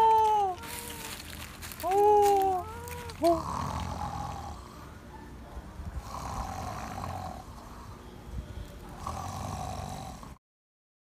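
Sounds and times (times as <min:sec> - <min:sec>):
rasping snores: 0:03.2 - 0:04.8, 0:06.0 - 0:08.0, 0:09.0 - 0:10.4.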